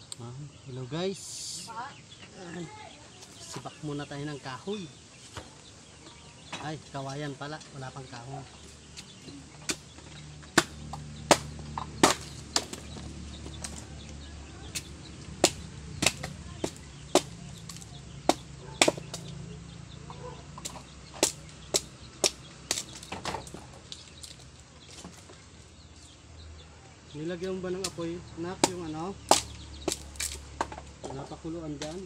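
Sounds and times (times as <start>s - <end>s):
knife chopping bamboo: 9.6s - 13.9s, 14.7s - 19.4s, 20.6s - 23.7s, 27.7s - 30.8s.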